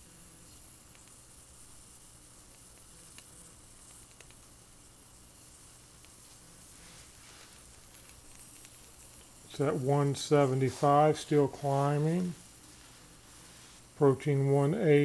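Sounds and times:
water sizzling in cup: 0.0s - 15.0s
faint ticks: 2.5s - 4.5s.

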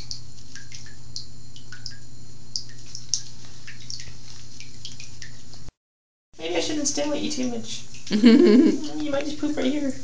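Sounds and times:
water drops plinking in bathtub: 0.0s - 5.4s
steady low hum: 0.0s - 5.8s.

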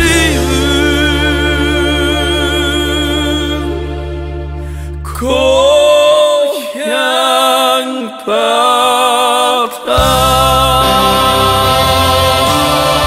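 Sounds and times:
band playing: 10.0s - 13.0s.

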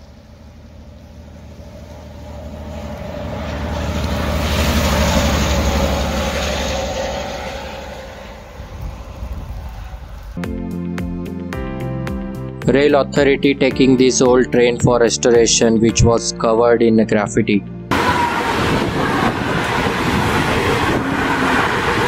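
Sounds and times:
diesel locomotive engine droning: 0.0s - 10.4s, 17.7s - 22.0s.

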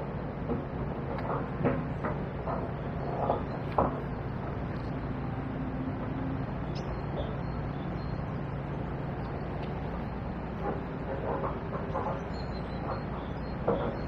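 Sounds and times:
distant traffic hum: 0.0s - 14.0s.

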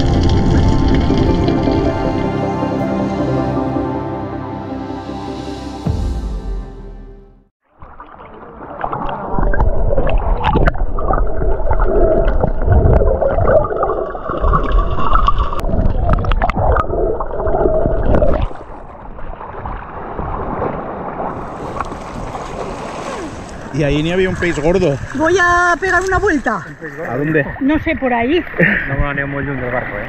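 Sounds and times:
muffled underwater water gurgling: 0.0s - 2.3s.

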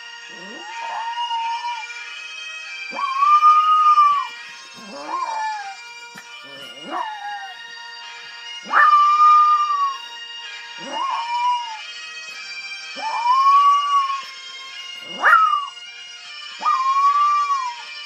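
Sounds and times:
puppy howling: 0.0s - 1.9s, 2.9s - 7.6s, 8.6s - 10.1s, 10.8s - 11.9s, 13.0s - 14.3s, 15.0s - 15.8s, 16.6s - 17.9s
bagpipe music: 0.0s - 18.0s.

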